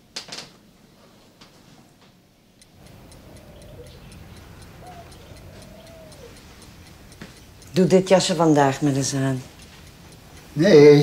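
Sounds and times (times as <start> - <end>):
clock ticking: 2.6 - 11.0.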